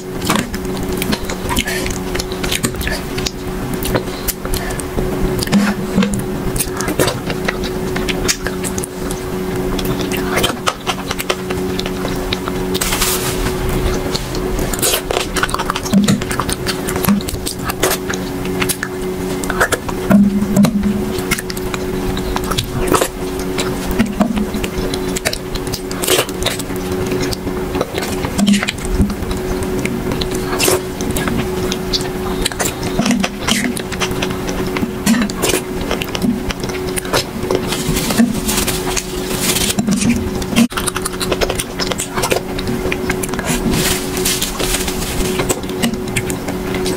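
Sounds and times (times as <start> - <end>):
low hum: 0.0 - 46.9
wet mouth clicks and squishes: 13.9 - 46.9.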